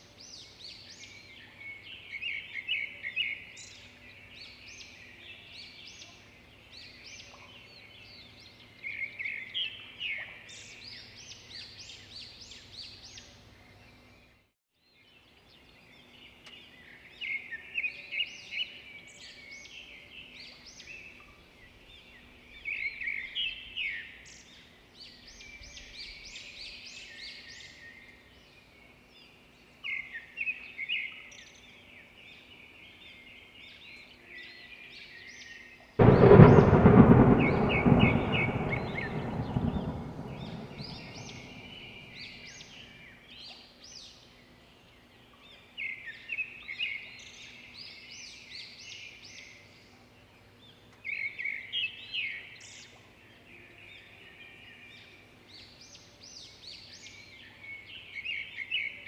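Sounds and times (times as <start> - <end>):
loud rumble: 36.0 - 42.3.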